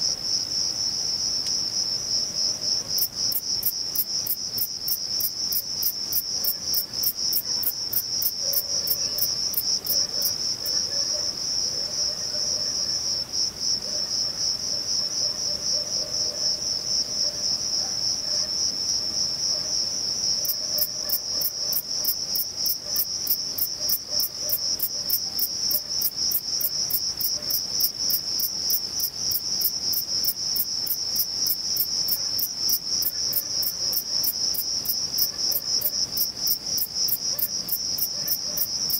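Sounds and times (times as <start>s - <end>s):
bush cricket stridulating: 16.2s - 38.9s.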